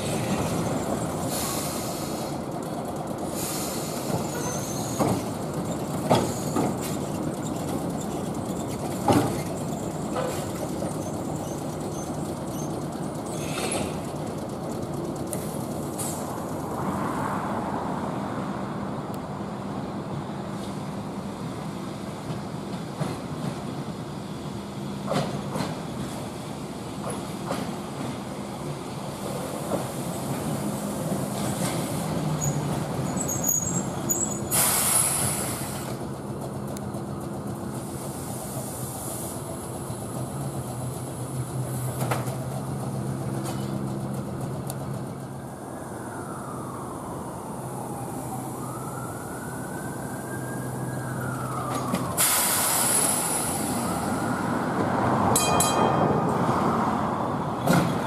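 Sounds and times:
streetcar running gear hum: 0:00.0 - 0:58.0
streetcar whine: 0:00.0 - 0:58.0
air hiss bursts: 0:34.5 - 0:35.9, 0:52.2 - 0:53.8.

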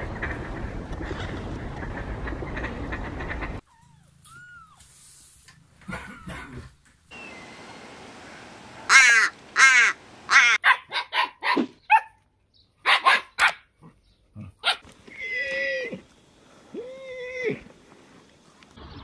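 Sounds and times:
dogs barking and yipping: 0:08.9 - 0:12.2, 0:12.8 - 0:14.0, 0:14.6 - 0:15.0.

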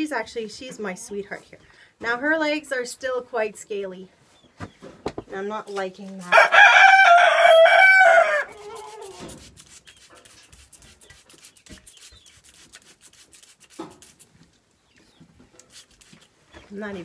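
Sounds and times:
rooster crowing: 0:06.3 - 0:09.0
faint rubbing and light clicks: 0:08.5 - 0:17.0.

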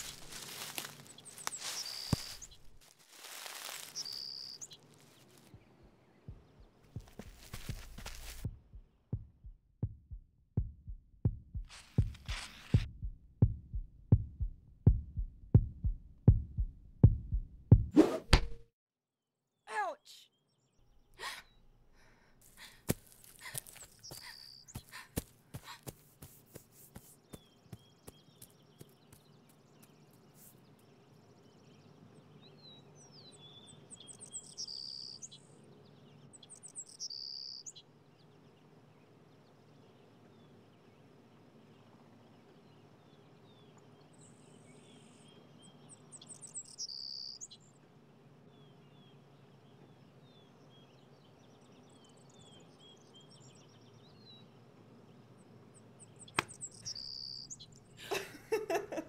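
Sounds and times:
small birds chirping: 0:00.0 - 0:08.5, 0:19.7 - 0:58.7
high bird trills: 0:01.2 - 0:02.7, 0:03.8 - 0:04.8, 0:56.2 - 0:57.8.

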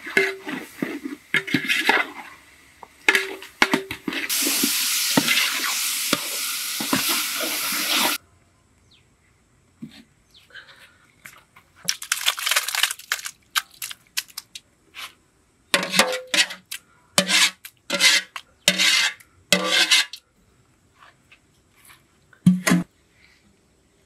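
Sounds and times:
metal ladle scraping a pot: 0:00.0 - 0:02.3, 0:15.8 - 0:16.6, 0:17.2 - 0:20.2.

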